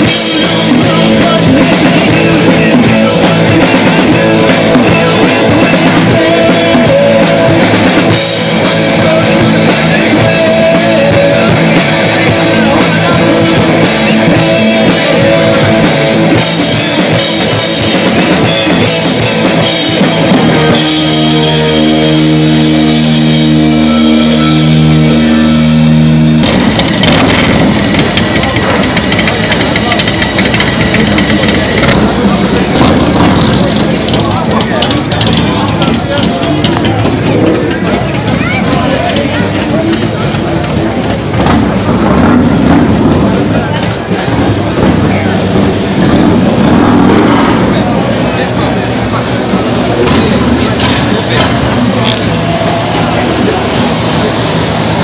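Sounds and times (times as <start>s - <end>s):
person singing: 0.0s - 26.0s
bass guitar: 0.0s - 55.0s
drum kit: 0.0s - 55.0s
electric guitars: 0.0s - 55.0s
noise: 0.0s - 55.0s.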